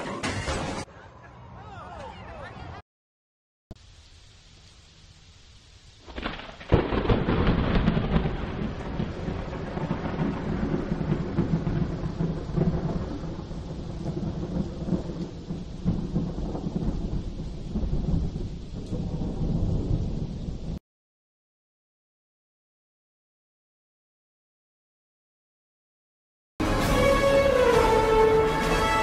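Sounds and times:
rain: 3.7s - 20.8s, 26.6s - 29.0s
low rumbling thunder: 6.0s - 20.8s
thunder clap: 6.0s - 20.8s.

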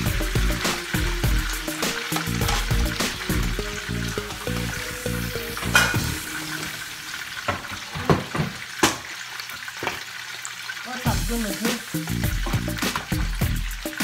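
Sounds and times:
background music: 0.0s - 7.1s, 11.1s - 14.0s
oil popping: 0.0s - 10.2s, 11.1s - 14.0s
fish sizzling in hot oil: 0.0s - 14.0s.

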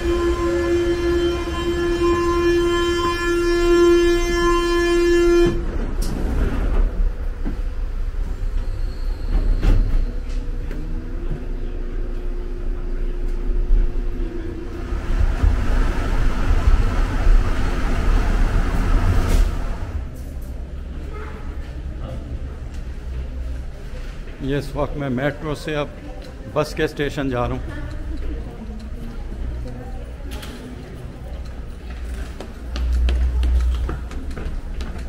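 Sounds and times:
train door warning tone: 0.0s - 5.8s
train car rumbling: 0.0s - 35.0s.

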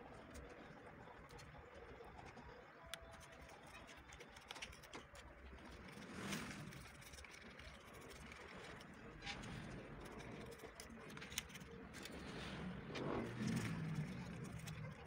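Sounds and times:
low background rumble: 5.4s - 15.0s.

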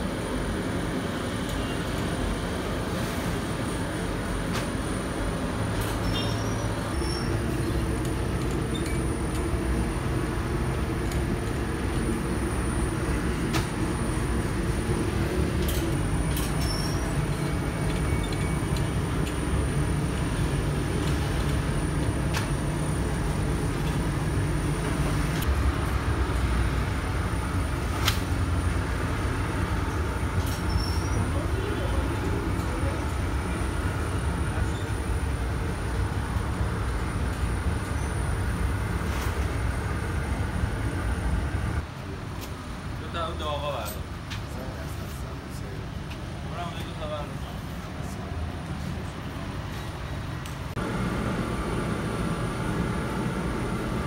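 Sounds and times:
machine rumbling: 50.8s - 54.0s.

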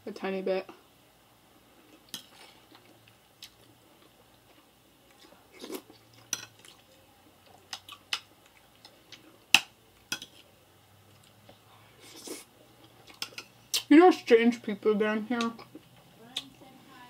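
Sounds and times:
soft chewing: 1.8s - 13.9s.

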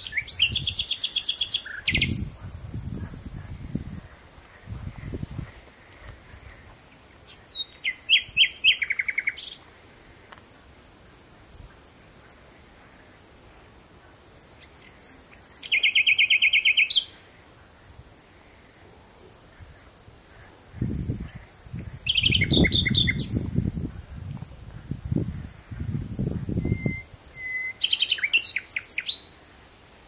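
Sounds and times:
nightingale singing: 0.0s - 4.0s, 6.4s - 9.7s, 14.6s - 17.2s, 20.8s - 23.9s, 25.0s - 29.4s
steady high hiss: 0.0s - 30.0s.

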